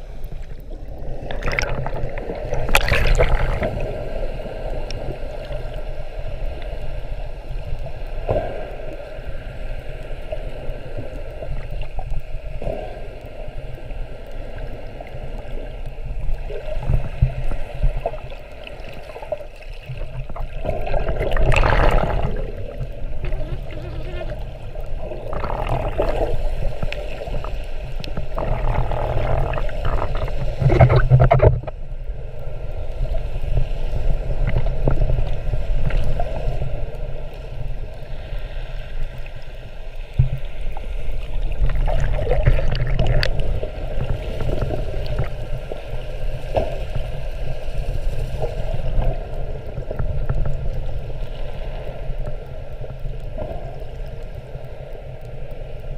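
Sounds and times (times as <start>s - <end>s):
muffled underwater rumble: 0.0s - 55.9s
water sloshing: 1.2s - 4.0s, 17.3s - 31.7s, 41.2s - 45.4s.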